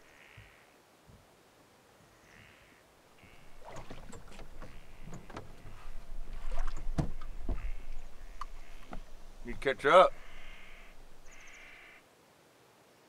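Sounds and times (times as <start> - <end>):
water splashing against boat hull: 3.2 - 11.8.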